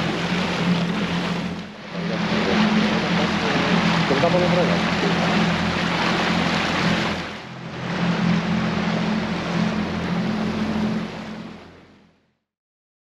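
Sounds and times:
rushing water: 0.0s - 12.2s
boat motor droning: 0.0s - 12.4s.

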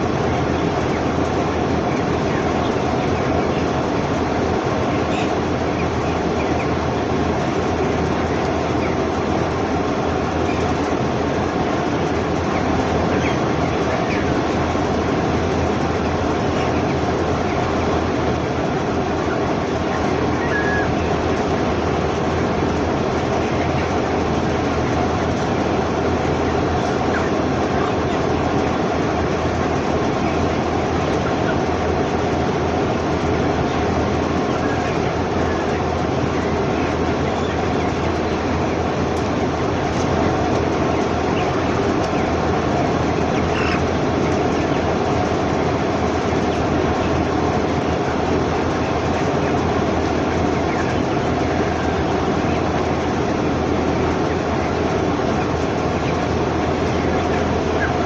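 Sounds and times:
faint chick peeps: 0.0s - 11.0s, 11.7s - 14.6s, 15.5s - 58.0s
constant low hum: 0.0s - 58.0s
dense din of chickens: 0.0s - 58.0s.

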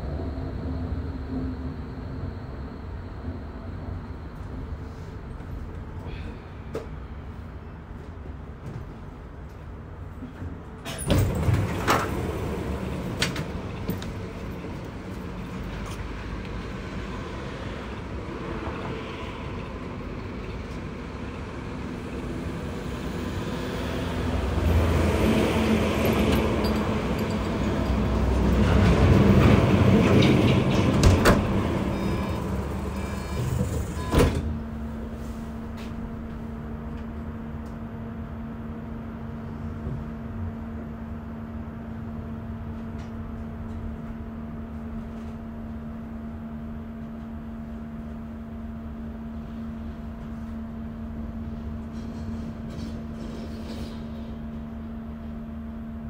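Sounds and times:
tram rumbling: 0.0s - 56.0s
tram clunk: 8.3s - 16.8s, 18.0s - 37.1s.

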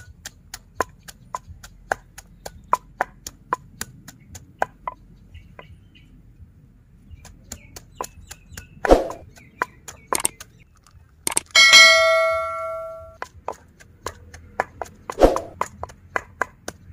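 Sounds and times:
pestle pounding in mortar: 0.0s - 5.0s, 7.1s - 10.6s, 11.3s - 16.9s
bell-like ding: 11.6s - 13.2s.

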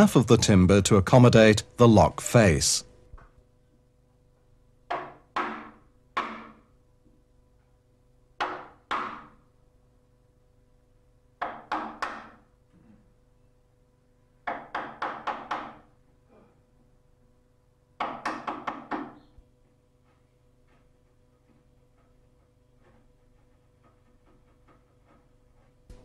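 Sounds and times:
mallet striking wood chisel: 4.9s - 6.7s, 8.4s - 9.4s, 11.4s - 12.5s, 14.4s - 15.9s, 18.0s - 19.3s.

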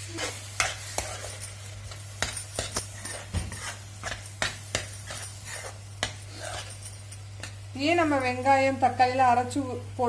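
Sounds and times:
spoon scraping frying pan: 0.0s - 7.7s.

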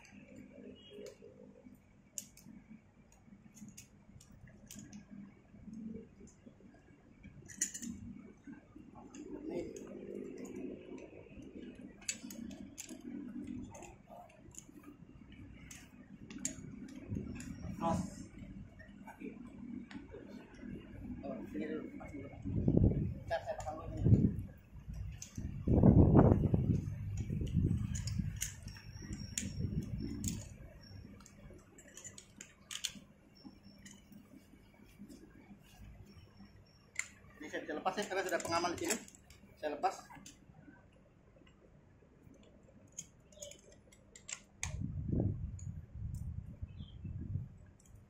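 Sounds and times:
metallic clicks of carabiners: 2.1s - 6.4s, 7.2s - 18.5s, 23.4s - 34.3s, 36.0s - 40.4s, 42.3s - 46.4s, 47.7s - 48.0s.

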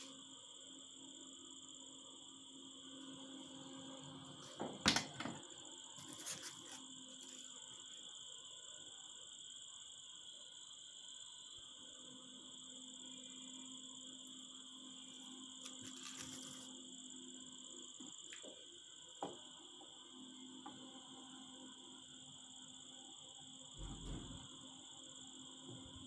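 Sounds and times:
knocks and scrapes of handled foam: 6.0s - 7.5s.

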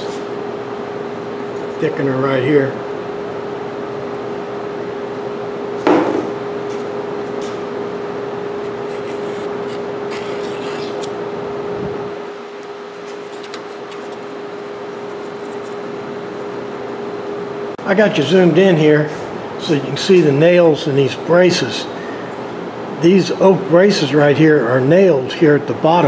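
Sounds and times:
steady hum: 0.0s - 26.0s
knock: 5.9s - 6.4s
wooden stick scraping epoxy: 8.7s - 11.1s, 13.0s - 17.0s.

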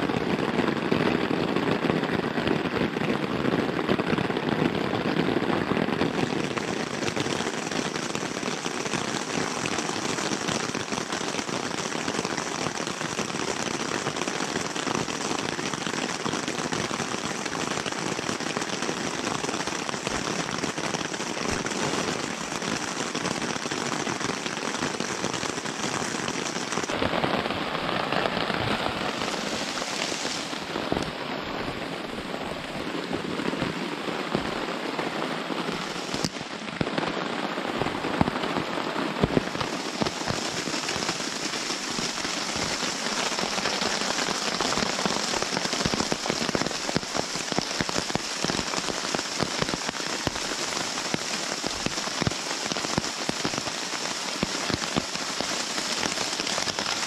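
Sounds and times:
heavy rain on a tent: 0.0s - 57.0s
raindrop hits: 19.6s - 57.0s.

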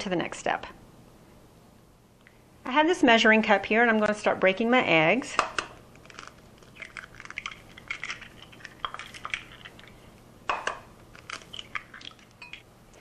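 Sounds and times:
eggshells cracking: 5.4s - 12.6s.

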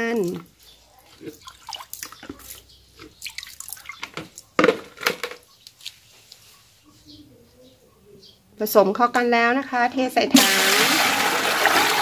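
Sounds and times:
water dripping: 0.0s - 4.4s
liquid sloshing in plastic basin: 0.0s - 5.0s.

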